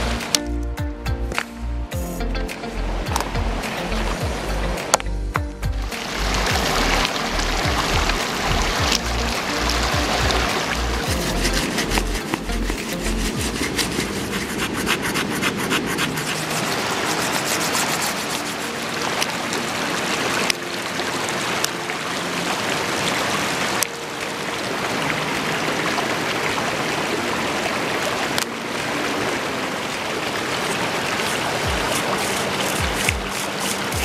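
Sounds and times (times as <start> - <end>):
river rushing over rocks: 5.9 - 34.0
wood scraping on stone: 11.0 - 18.7, 31.2 - 34.0.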